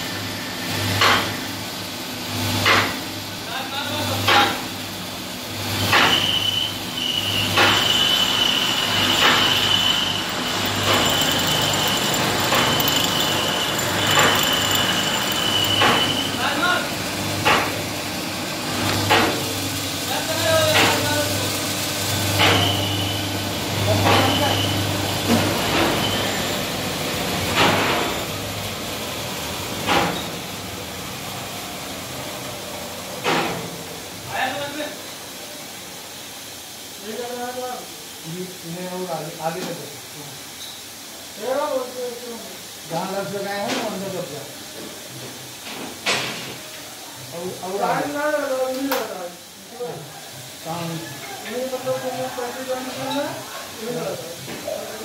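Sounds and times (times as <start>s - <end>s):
blender agitator stroke: 5.8s - 17.6s
high-pitched squeal: 6.2s - 16.5s.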